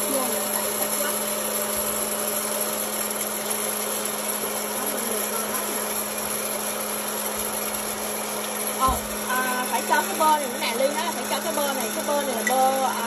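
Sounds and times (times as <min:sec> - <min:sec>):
popcorn machine motor hum: 0:00.0 - 0:13.0.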